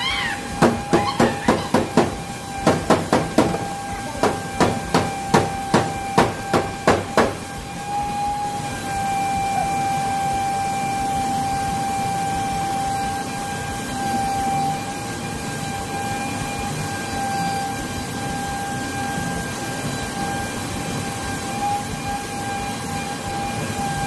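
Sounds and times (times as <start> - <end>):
high-pitched hum: 0.0 - 24.0
hammer striking sheet metal: 0.6 - 7.4.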